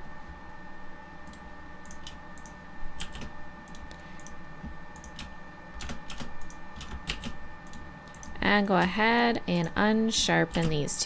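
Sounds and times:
faint steady hum: 0.0s - 11.0s
keyboard and mouse clicking: 1.3s - 4.4s, 5.0s - 8.4s.

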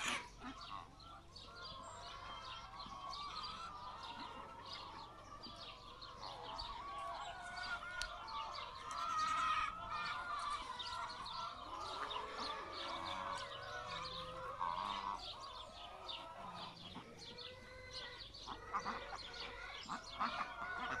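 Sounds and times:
ducks geese and chickens calling: 0.0s - 21.0s.

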